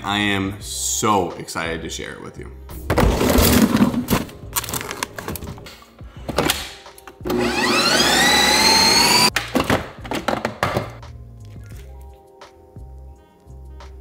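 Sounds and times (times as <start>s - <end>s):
ice cream maker motor whine: 7.2s - 9.3s.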